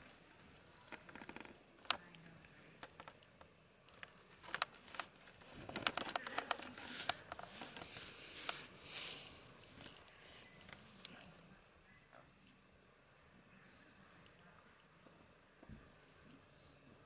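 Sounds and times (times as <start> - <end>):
fawn rustling among plants: 5.4 - 11.0.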